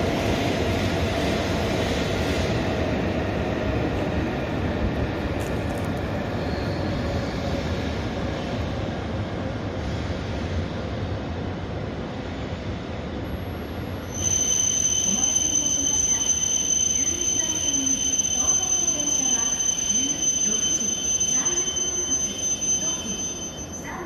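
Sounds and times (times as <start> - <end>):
train rumble: 0.0 - 24.0
high-pitched brake squeal: 6.4 - 7.4, 14.0 - 24.0.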